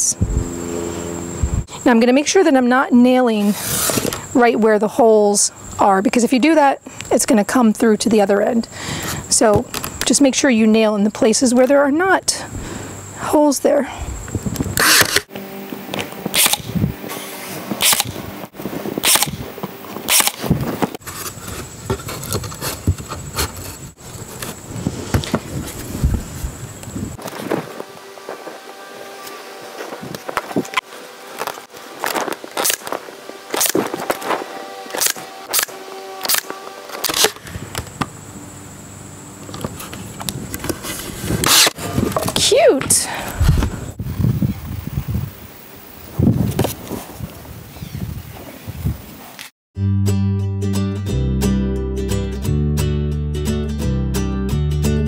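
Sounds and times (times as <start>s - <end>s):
nailer motor hum: 14.8s - 20.9s, 30.1s - 38.0s
nail gun shots into wood: 16.4s - 16.7s, 17.8s - 18.2s, 19.0s - 19.4s, 20.1s - 20.5s.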